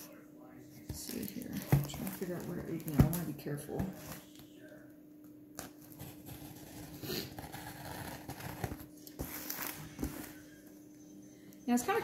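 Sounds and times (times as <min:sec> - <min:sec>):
scissors cutting packing tape: 0:05.6 - 0:09.2.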